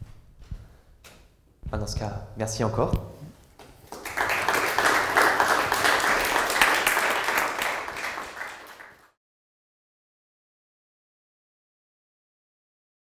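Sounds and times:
audience applauding: 0:03.8 - 0:09.2.

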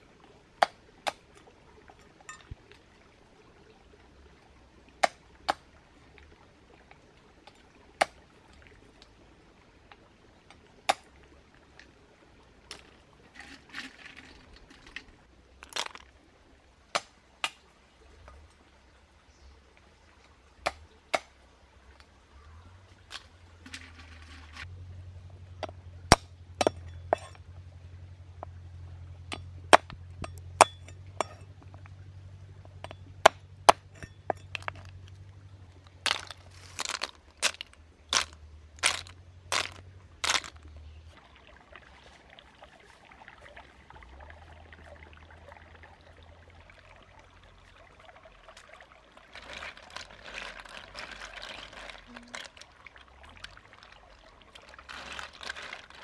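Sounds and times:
water splashing in a basket: 0:00.0 - 0:56.0
cleaver chopping snail shells: 0:36.1 - 0:40.6.

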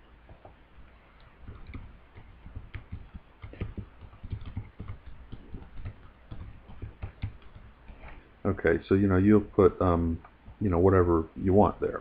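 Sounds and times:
keyboard typing clicks: 0:01.2 - 0:07.7.

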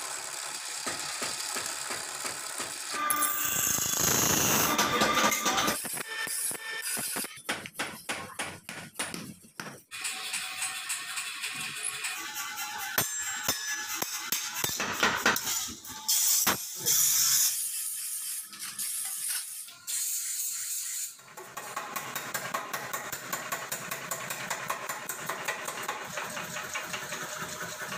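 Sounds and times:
machine running with fast rattle: 0:00.0 - 0:06.0, 0:23.3 - 0:27.9.

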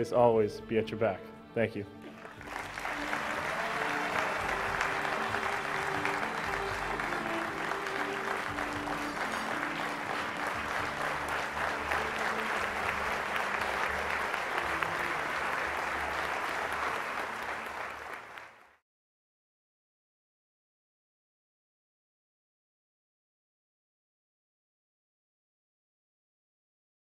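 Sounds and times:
background music: 0:00.0 - 0:18.6
audience applauding: 0:02.0 - 0:18.8.

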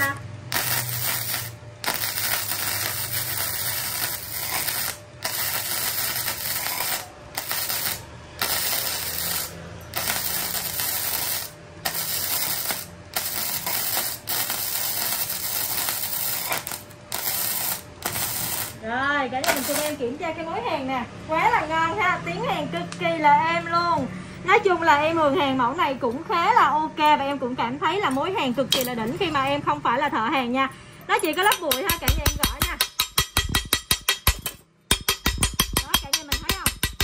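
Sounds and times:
welding arc crackle: 0:00.0 - 0:18.8, 0:19.4 - 0:20.0.

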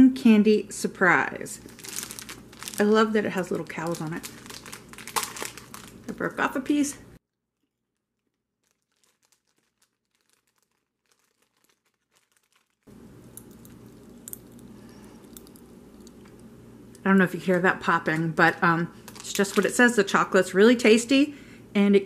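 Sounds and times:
popping candy crackling: 0:01.6 - 0:06.6, 0:07.3 - 0:17.1, 0:18.0 - 0:20.0.

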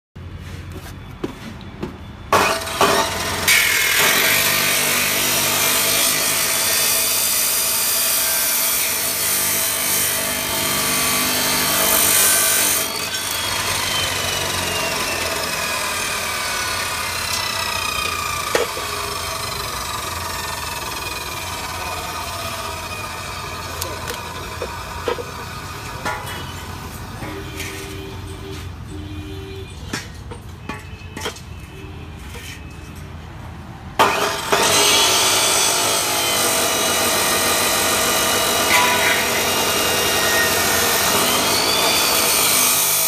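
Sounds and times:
chop saw grinding metal: 0:02.3 - 0:28.0, 0:34.0 - 0:43.0
saw wheel whine spinning down: 0:02.5 - 0:26.2, 0:34.1 - 0:43.0.

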